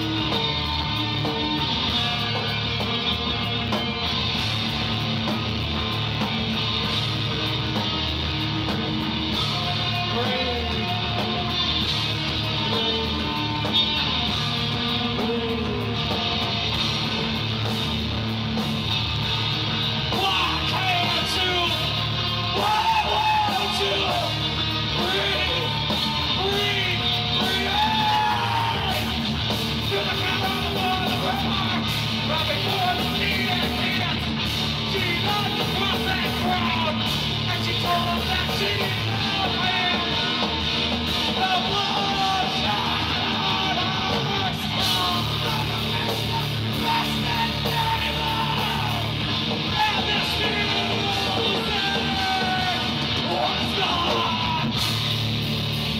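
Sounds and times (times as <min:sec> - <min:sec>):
heavy rock band playing: 0:00.0 - 0:55.9
shouted vocals: 0:20.0 - 0:55.0.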